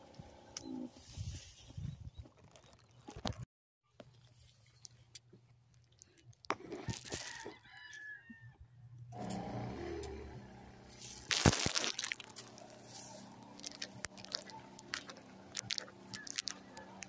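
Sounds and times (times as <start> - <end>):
rooster crowing: 6.9 - 8.6
rustles and clicks: 10.9 - 17.0.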